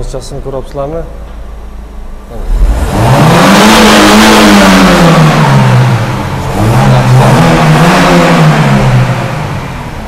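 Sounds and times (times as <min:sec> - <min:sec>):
car engine revving: 0:01.7 - 0:10.0.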